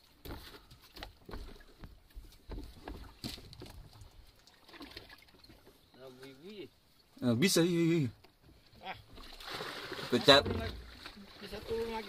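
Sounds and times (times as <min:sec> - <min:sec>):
water slapping against hull: 0:02.5 - 0:05.8, 0:09.1 - 0:12.0.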